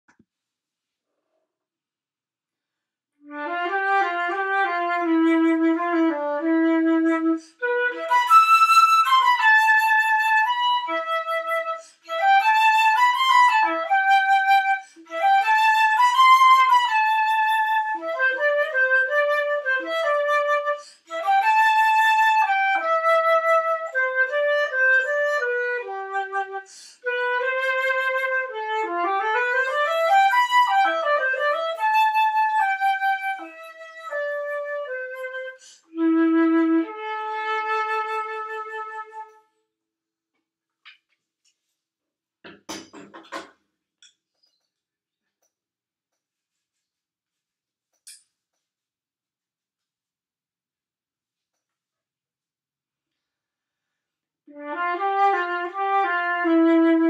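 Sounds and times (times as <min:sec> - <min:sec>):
flute melody: 0:03.2 - 0:39.5, 0:54.5 - 0:57.0
flute player breathing: 0:07.2 - 0:07.7, 0:11.6 - 0:12.2, 0:20.6 - 0:21.2, 0:26.5 - 0:27.1, 0:35.4 - 0:36.0, 0:53.1 - 0:54.2.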